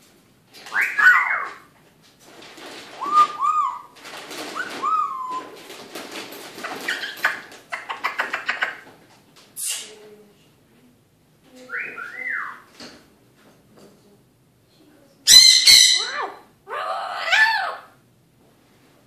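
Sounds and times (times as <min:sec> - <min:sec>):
parrot whistles: 0:00.7 - 0:01.4, 0:03.0 - 0:03.9, 0:04.6 - 0:05.5, 0:11.7 - 0:12.7
parrot calling: 0:00.7 - 0:01.7, 0:03.0 - 0:04.0, 0:04.6 - 0:05.6, 0:15.3 - 0:18.0
parrot clicky chatter: 0:06.6 - 0:08.9
parrot screech: 0:15.3 - 0:17.9.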